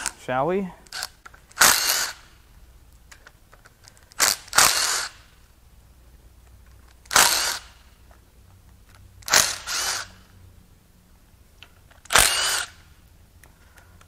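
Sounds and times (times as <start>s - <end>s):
power tool motor whining: 4.2s - 5.2s, 7.1s - 7.8s, 9.2s - 10.2s, 12.1s - 12.8s.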